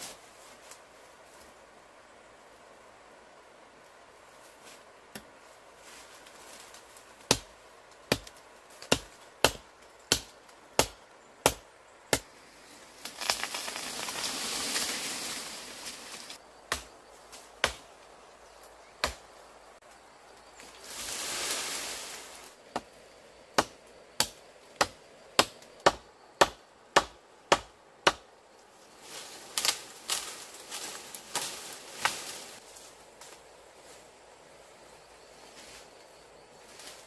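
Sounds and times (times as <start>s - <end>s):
machete chopping wood: 7.3s - 7.5s, 8.1s - 12.3s, 16.7s - 16.9s, 17.6s - 17.9s, 19.0s - 19.2s, 23.6s - 28.3s
brush rustling and snapping: 12.2s - 18.0s, 28.8s - 33.4s.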